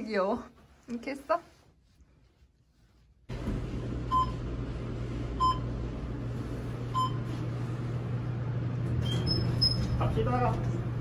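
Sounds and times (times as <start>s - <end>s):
elevator car humming: 3.3s - 11.0s.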